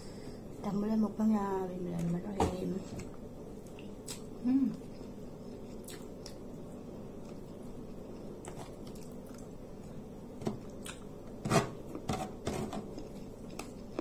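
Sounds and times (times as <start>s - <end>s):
person chewing food: 3.6s - 12.1s, 12.8s - 14.0s.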